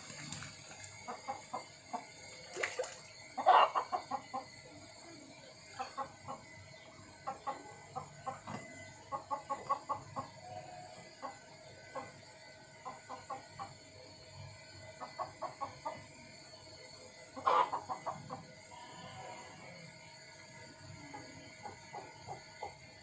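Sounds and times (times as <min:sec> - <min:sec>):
hen clucking: 0:03.4 - 0:04.5, 0:17.4 - 0:18.3.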